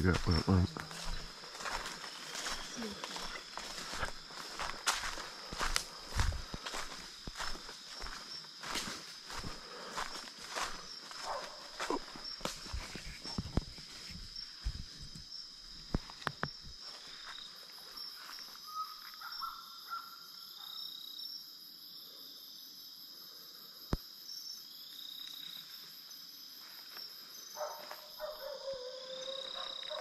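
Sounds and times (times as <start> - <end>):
footsteps on dry leaves: 0.0 - 14.9
fast pulsing insect trill: 0.0 - 20.0
insects trilling: 0.0 - 30.0.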